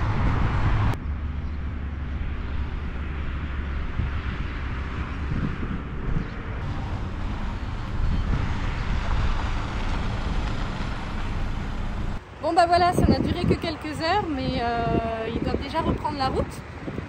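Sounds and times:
motorhome engine running: 0.0 - 17.0
wind buffeting microphone: 0.0 - 17.0.

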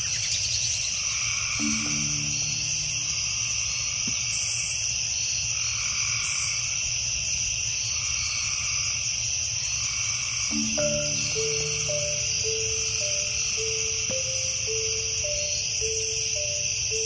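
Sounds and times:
insects chorus: 0.0 - 17.0
low hum: 1.6 - 3.9, 10.6 - 16.2.

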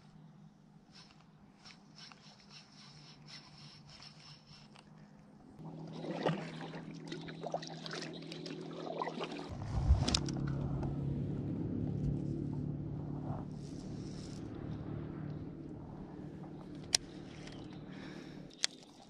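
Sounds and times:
water dribbling: 5.8 - 9.5
low rumble: 9.5 - 17.9.

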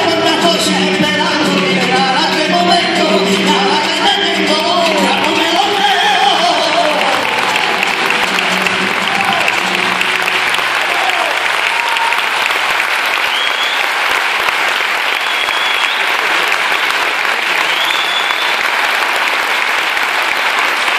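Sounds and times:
music: 0.0 - 12.6
audience applauding: 0.0 - 20.9.

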